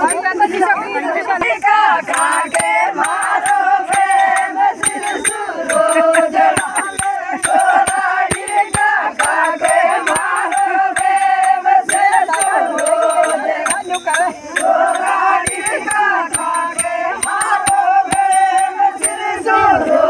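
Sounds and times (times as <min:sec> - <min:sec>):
women singing in chorus: 0:00.0 - 0:20.0
hand claps: 0:01.4 - 0:19.3.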